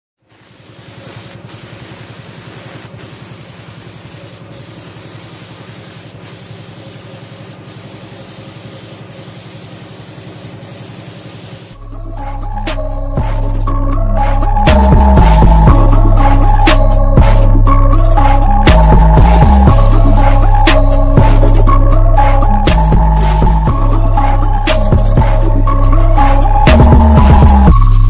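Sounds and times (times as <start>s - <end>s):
paint spray gun hissing: 0.2s - 11.8s
bass-heavy music: 11.8s - 28.0s.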